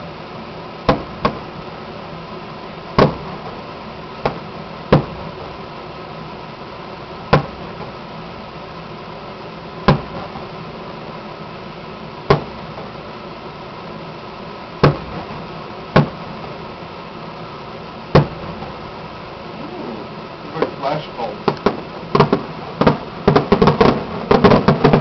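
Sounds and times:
steady background hum: 0.0 - 25.0
distant firework booms: 21.4 - 25.0.

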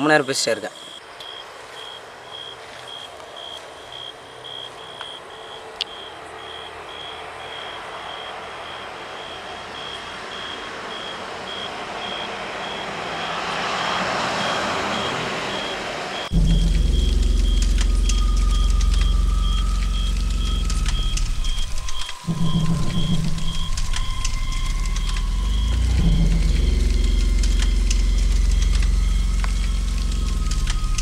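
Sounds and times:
reversing alarm beeping: 4.8 - 31.0
rushing noise: 7.2 - 31.0
loud low rumble: 15.4 - 31.0.

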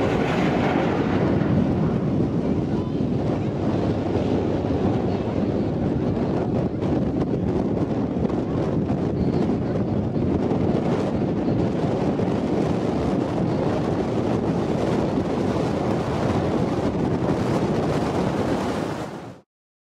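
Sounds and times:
wind buffeting microphone: 0.0 - 19.4.

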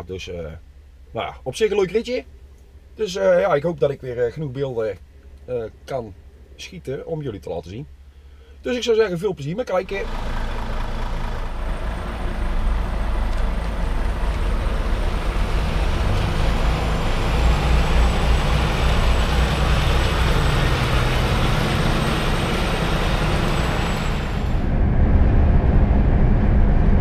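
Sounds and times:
lorry diesel engine running: 9.8 - 27.0
lorry droning on motorway: 9.9 - 27.0.

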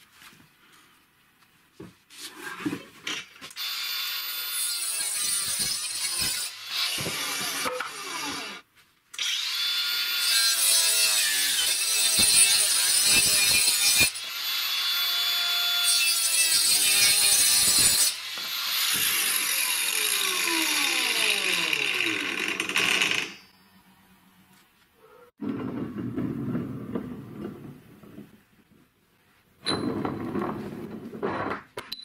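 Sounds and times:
angle grinder cutting metal sheet: 3.6 - 8.6, 9.2 - 23.4
grinder motor winding down: 19.6 - 23.4.

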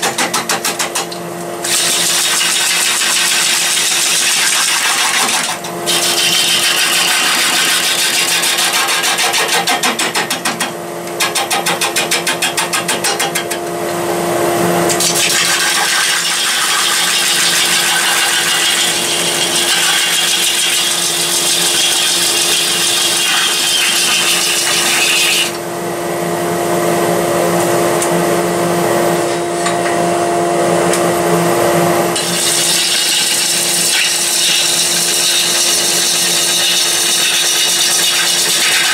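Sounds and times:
gouge cutting wood: 1.7 - 13.3, 15.4 - 25.6, 32.2 - 38.9.

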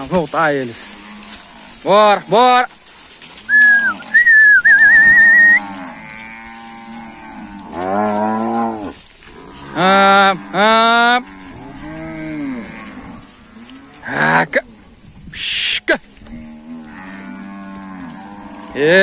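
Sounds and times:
cattle mooing: 3.4 - 14.9, 16.2 - 19.0
high wavering whistle: 3.5 - 5.6.

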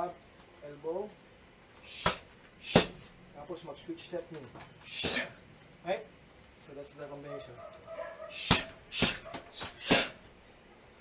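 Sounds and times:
strikes slapping on pads: 2.0 - 3.1, 4.9 - 5.3, 8.4 - 10.2.

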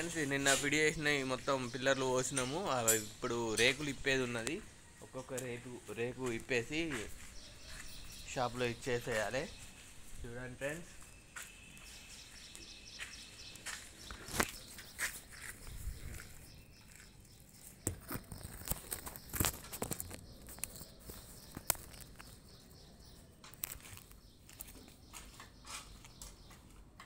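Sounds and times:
flip-flop footsteps on wet concrete: 11.4 - 17.2.

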